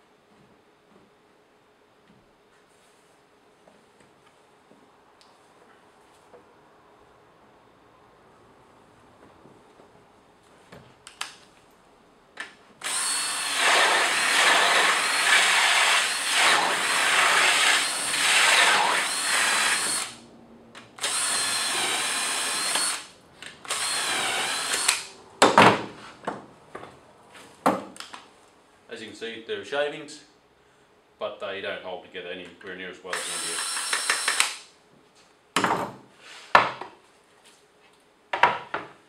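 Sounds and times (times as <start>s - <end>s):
cordless drill boring wood: 12.8s - 20.2s, 21.0s - 25.1s, 33.1s - 34.6s.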